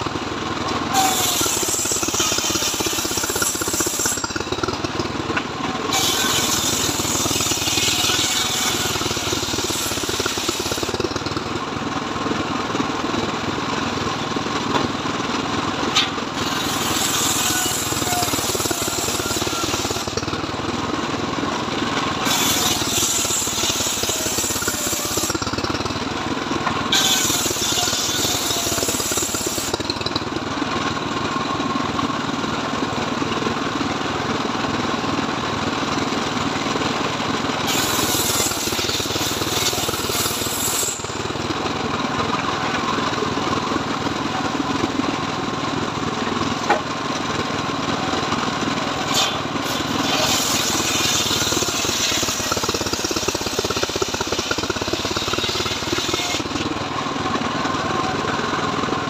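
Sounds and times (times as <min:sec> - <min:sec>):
saw mill engine running: 0:00.0 - 0:59.0
saw blade cutting timber: 0:00.8 - 0:11.6, 0:15.9 - 0:20.4, 0:21.9 - 0:26.0, 0:26.6 - 0:30.2, 0:37.6 - 0:41.5, 0:48.8 - 0:56.8.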